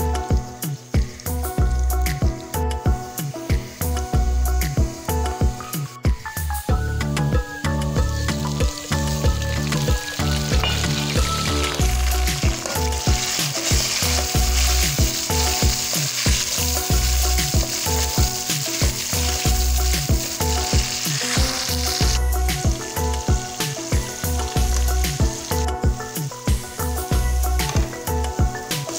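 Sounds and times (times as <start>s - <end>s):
background music with steady beat: 0.0s - 28.9s
vegetables sizzling in hot oil: 0.0s - 28.9s
metal spatula stirring in pot: 10.4s - 22.2s.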